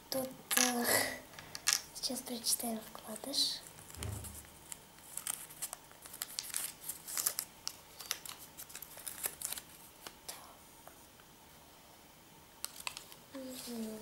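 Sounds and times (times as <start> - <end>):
paper leaflet crinkling: 3.7 - 9.8.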